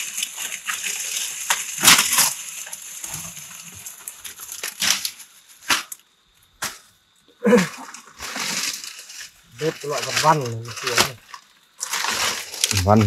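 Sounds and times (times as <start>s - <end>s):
dry leaves rustling and crunching: 0.0s - 6.0s, 7.8s - 13.0s
twigs snapping: 9.9s - 13.0s.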